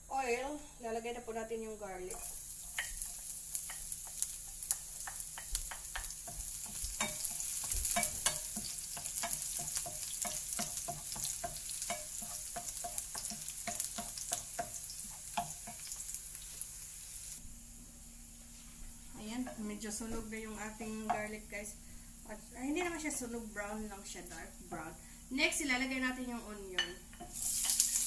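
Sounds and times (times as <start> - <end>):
garlic sizzling in oil: 1.3 - 17.4, 26.8 - 28.0
wooden spoon clicking on pan: 2.8 - 16.0.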